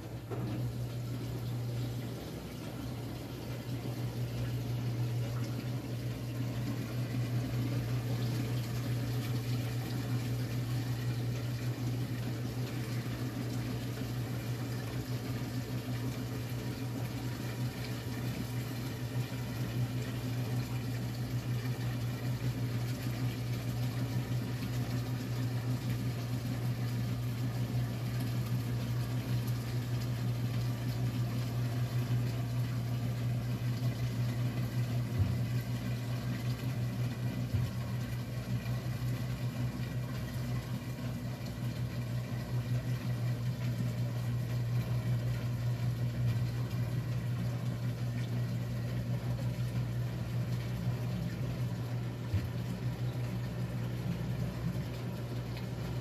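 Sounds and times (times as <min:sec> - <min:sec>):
faint water noise: 0:00.0 - 0:56.0
washing machine motor hum: 0:00.0 - 0:56.0.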